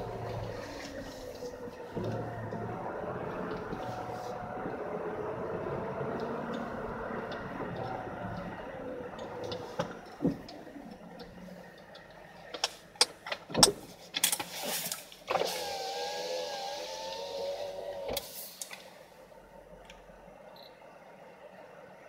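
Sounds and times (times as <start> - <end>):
power window motor whirring: 0.0 - 8.6, 15.3 - 18.3
car slowing to a stop: 0.0 - 22.0
sharp clicks and knocks: 11.2 - 14.5.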